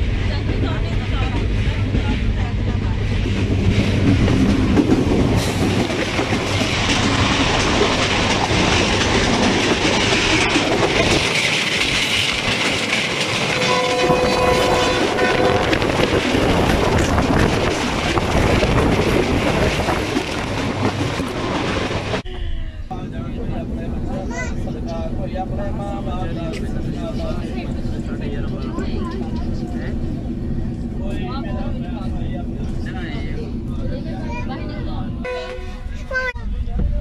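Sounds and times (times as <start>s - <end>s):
train wheels rattling on rails: 0.0s - 22.2s, 23.3s - 37.0s
train horn: 13.5s - 15.8s, 35.2s - 35.9s.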